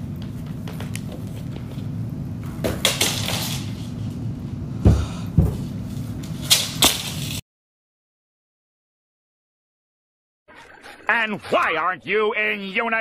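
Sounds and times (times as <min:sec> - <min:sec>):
steady low hum: 0:00.0 - 0:07.4
footsteps on wooden floor: 0:04.8 - 0:06.0.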